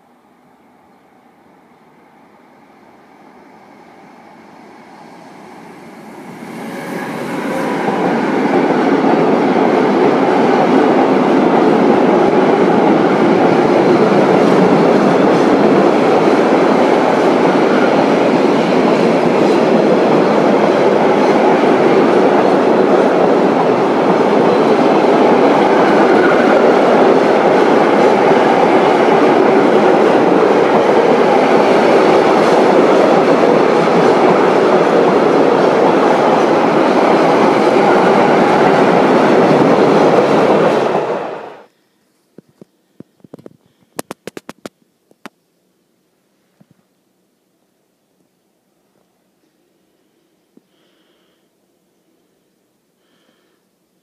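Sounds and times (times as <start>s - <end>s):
train wheels on rails: 2.9s - 41.7s.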